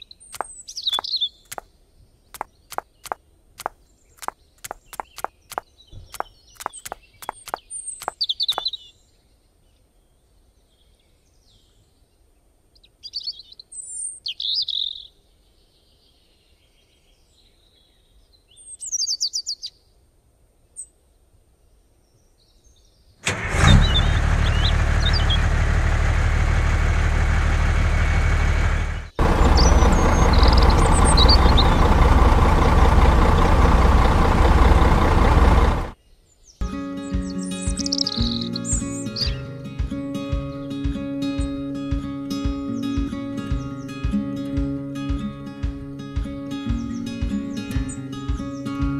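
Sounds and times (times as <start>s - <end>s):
birds chirping: 0.0s - 9.0s, 23.6s - 25.5s, 28.7s - 39.4s, 42.6s - 44.5s, 46.6s - 48.9s
vehicle engine running: 2.7s - 7.6s, 23.2s - 36.0s.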